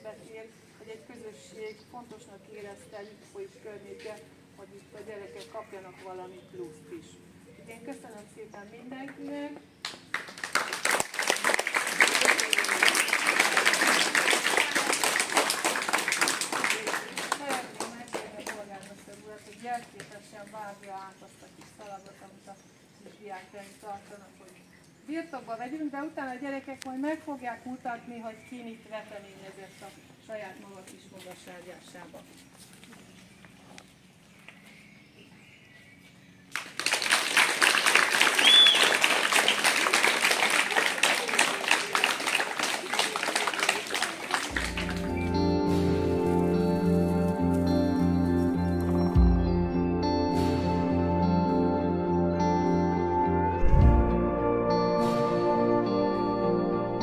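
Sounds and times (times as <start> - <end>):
people applauding: 9.9 - 18.6, 36.5 - 45.8.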